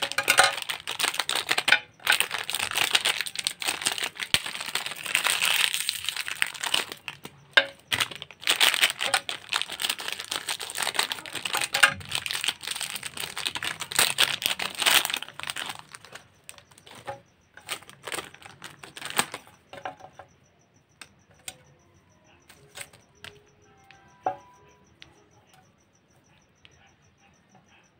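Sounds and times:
wrappers crinkling and tearing: 0:00.0 - 0:19.5.

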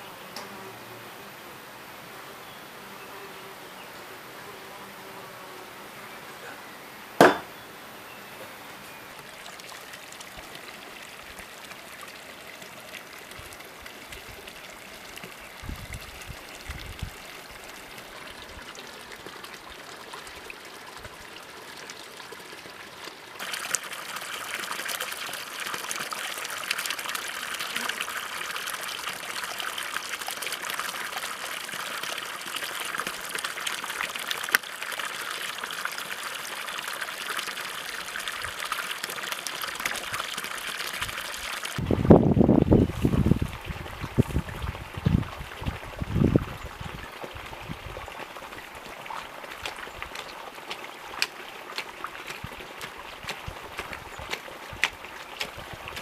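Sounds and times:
water trickling and splashing: 0:07.2 - 0:56.0.

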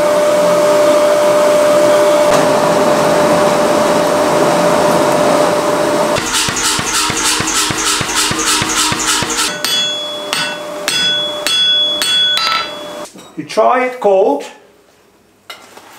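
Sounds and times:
air blower roaring: 0:00.0 - 0:09.7
hammer striking iron on anvil: 0:06.2 - 0:12.9.

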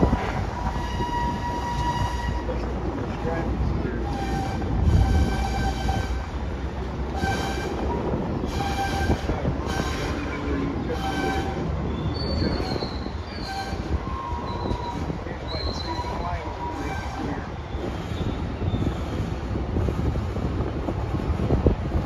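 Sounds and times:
low rumble of freight cars: 0:00.0 - 0:22.0
train wheels squealing: 0:09.7 - 0:19.3.

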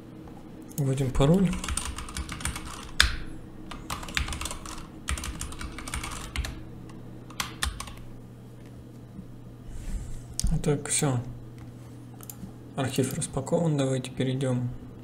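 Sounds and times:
keyboard keys clicking: 0:01.5 - 0:06.6, 0:07.3 - 0:08.0.

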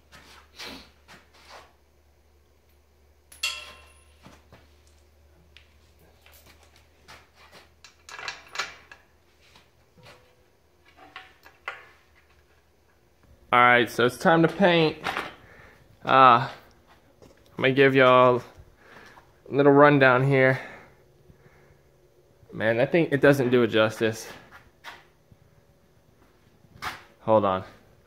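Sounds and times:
low steady hum: 0:01.2 - 0:28.0
metal bolts and nuts clinking: 0:02.6 - 0:04.4, 0:06.0 - 0:09.1.

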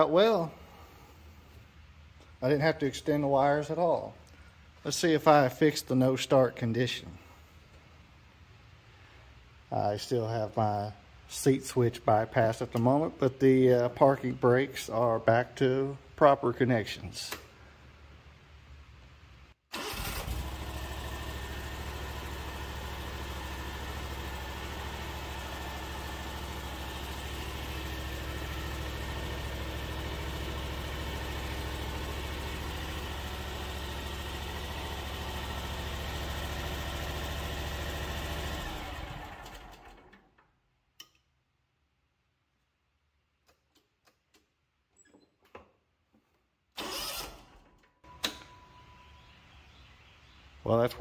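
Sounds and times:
mower engine running: 0:19.8 - 0:40.1.

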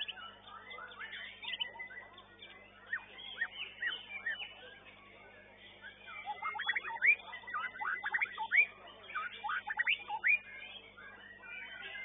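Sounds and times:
bird chirping and whistling: 0:06.3 - 0:10.4.

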